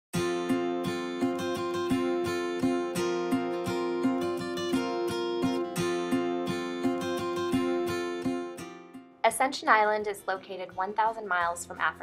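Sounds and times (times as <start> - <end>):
strummed acoustic guitar: 0.2 - 9.2.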